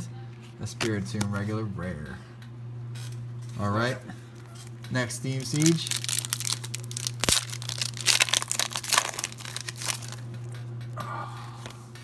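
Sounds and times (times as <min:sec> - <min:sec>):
steady low hum: 0:00.0 - 0:12.0
foil wrapper tearing and crinkling: 0:05.2 - 0:10.3.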